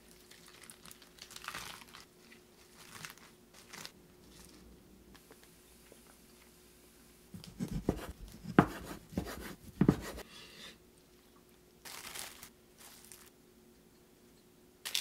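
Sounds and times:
cleaver chopping on wooden board: 7.4 - 10.2.

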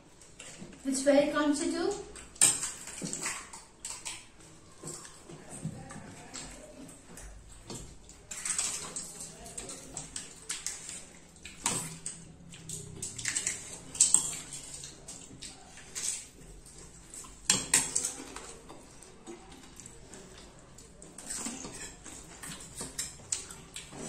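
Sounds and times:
small liquid splashes: 7.7 - 24.0.

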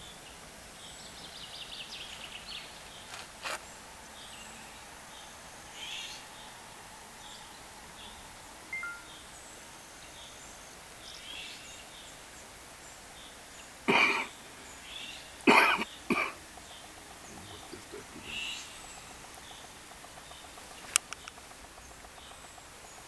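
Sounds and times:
faint bird chirps: 0.0 - 23.0
faint outdoor hiss: 0.0 - 23.0
person coughing: 13.9 - 14.3, 15.5 - 16.4.

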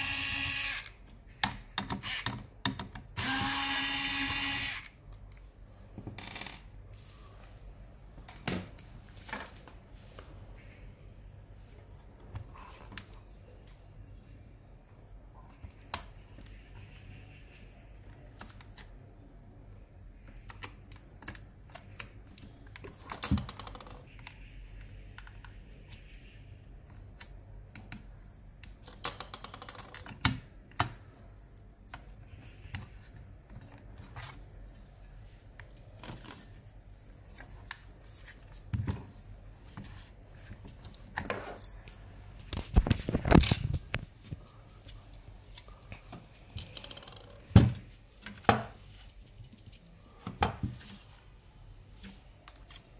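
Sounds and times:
metal and plastic clicks: 26.9 - 34.4.

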